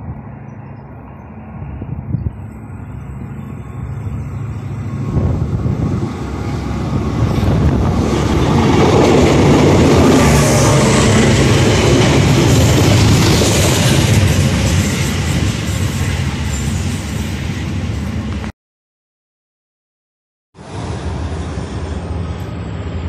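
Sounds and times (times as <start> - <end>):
diesel locomotive engines: 0.0 - 18.5, 20.6 - 23.0
train wagons rolling past: 2.4 - 18.5.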